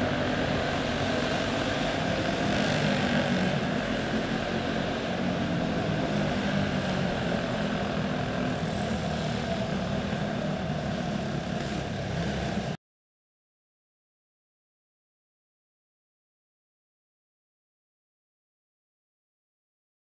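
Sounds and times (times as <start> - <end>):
small race car engines droning: 0.0 - 12.8.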